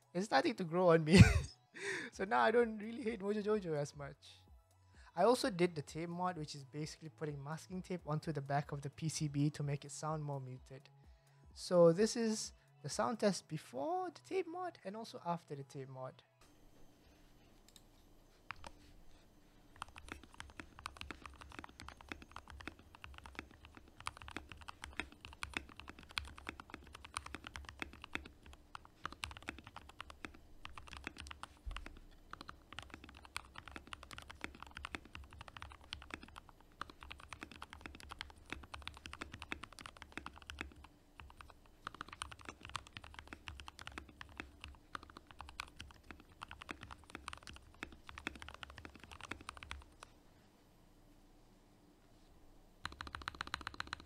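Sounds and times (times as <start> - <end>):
mechanical keyboard typing clacks: 19.8 - 50.0, 52.8 - 54.0.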